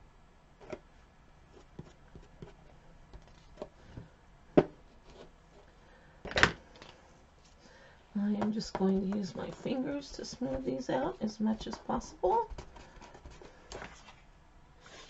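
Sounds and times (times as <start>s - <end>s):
rustling scrape: 12.6s - 15.0s.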